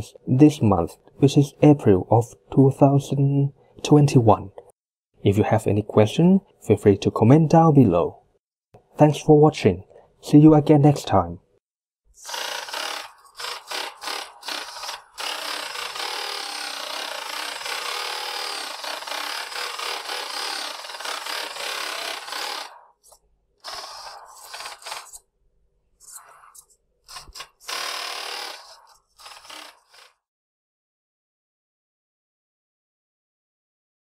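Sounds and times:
toy car motor on wooden desk: 12.2 - 25.2, 26.0 - 30.3.

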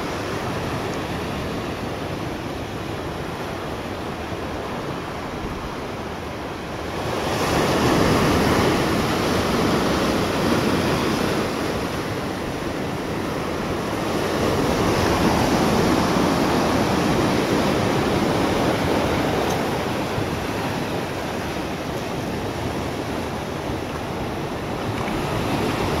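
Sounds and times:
sea waves washing: 0.0 - 26.0
wind: 0.0 - 26.0.

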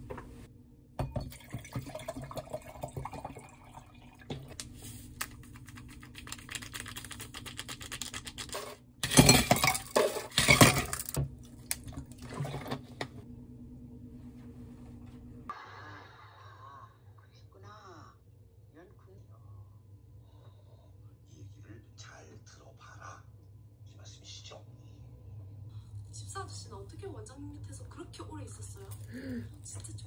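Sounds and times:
liquid poured into glass: 1.0 - 4.4.

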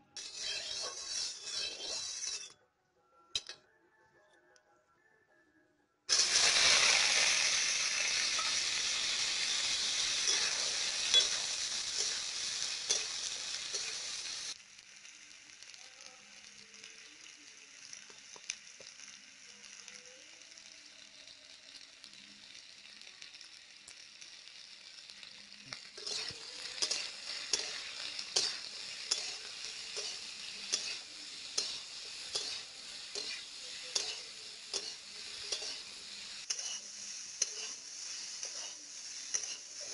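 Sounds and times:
vegetables sizzling in hot oil: 0.0 - 2.5, 6.1 - 39.9
metal spatula scraping a pan: 0.0 - 2.6, 6.1 - 14.6, 25.7 - 39.9.

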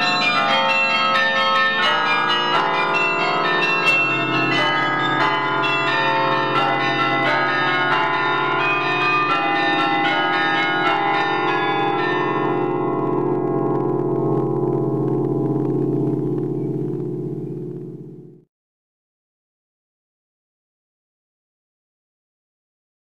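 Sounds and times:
carillon bells ringing: 0.0 - 18.4.

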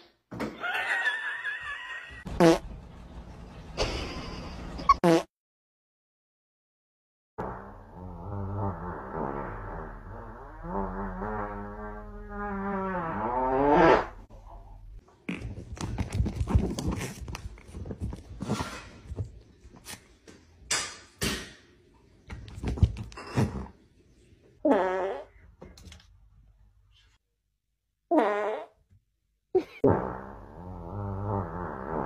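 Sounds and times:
person farting: 2.3 - 2.6, 4.9 - 5.3, 7.4 - 14.2, 15.2 - 15.7, 23.2 - 23.8, 24.6 - 25.4, 28.1 - 28.8, 29.6 - 32.0.

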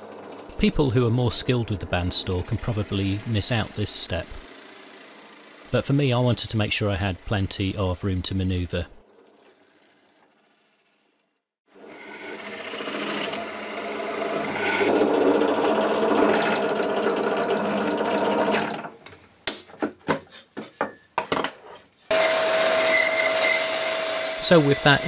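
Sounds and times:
drill press boring wood: 1.9 - 5.8, 11.8 - 18.9, 22.1 - 25.0.

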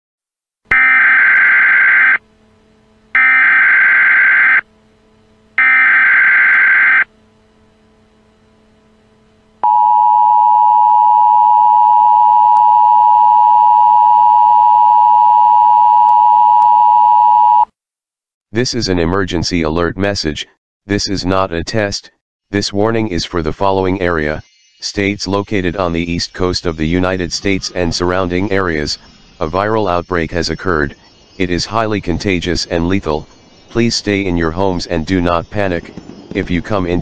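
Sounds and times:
digital data tone bursts: 0.7 - 2.2, 3.2 - 4.6, 5.6 - 7.1, 23.8 - 37.0
two-tone attention signal: 0.7 - 2.2, 3.2 - 4.6, 5.6 - 7.1, 9.6 - 17.6.

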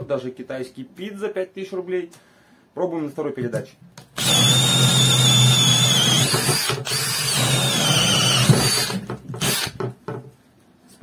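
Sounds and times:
drill motor whine: 4.2 - 9.7
drill bit cutting wood: 4.2 - 9.8.

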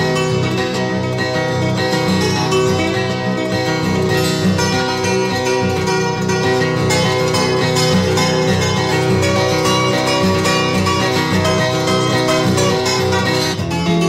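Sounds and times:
acoustic guitar plucking: 0.0 - 14.0.

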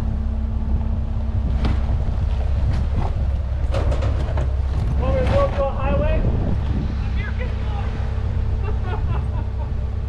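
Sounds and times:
vehicle engine and road rumble: 0.0 - 10.0
wind buffeting microphone: 0.0 - 10.0
knocks and rattles: 1.5 - 5.8.

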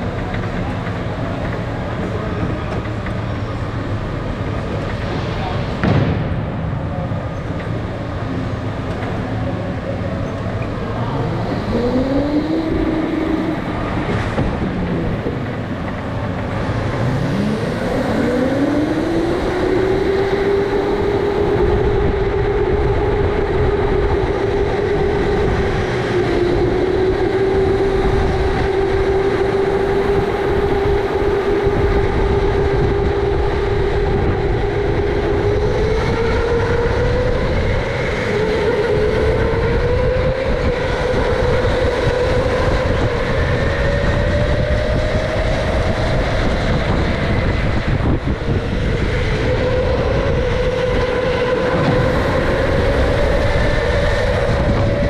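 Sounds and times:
low rumble: 0.0 - 38.1
electric go-kart motor whining: 7.4 - 55.0.

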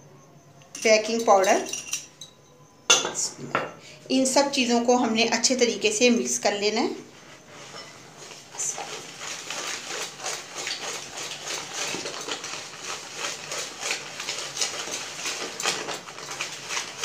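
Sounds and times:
hand mixing powder in bowl: 6.8 - 17.0.

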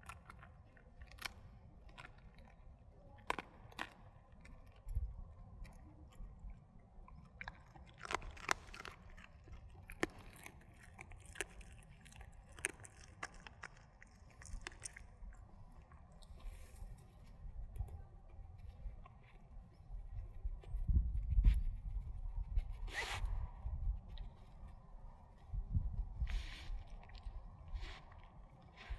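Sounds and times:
dog crunching bones: 0.0 - 16.4.

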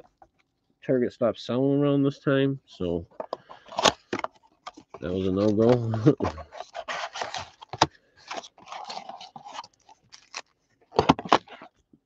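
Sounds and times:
cardboard scraping and rustling: 3.5 - 11.7.

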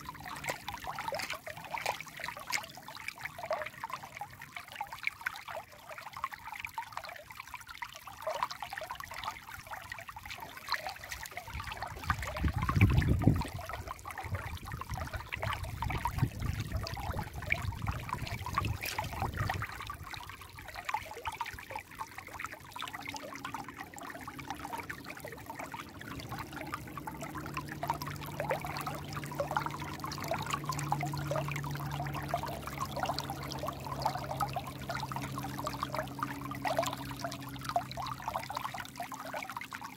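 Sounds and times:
stream babbling over stones: 0.0 - 39.9.

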